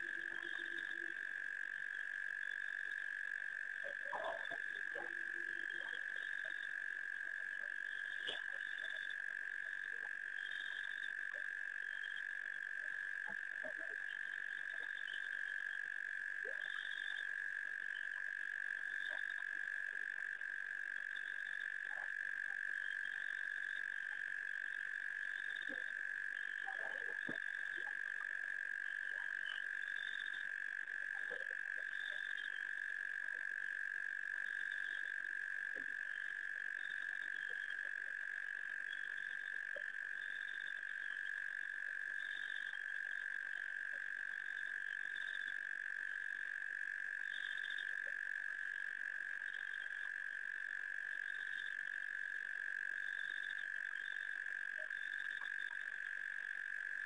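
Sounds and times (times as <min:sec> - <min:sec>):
frogs chirping: 0:00.0 - 0:57.0
frogs trilling: 0:00.0 - 0:57.0.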